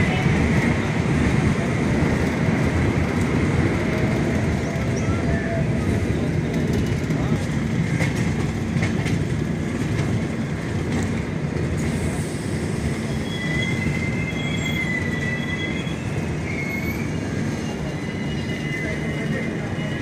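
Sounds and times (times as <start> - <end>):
train rumble: 0.0 - 20.0
high wheel squeal: 12.1 - 20.0.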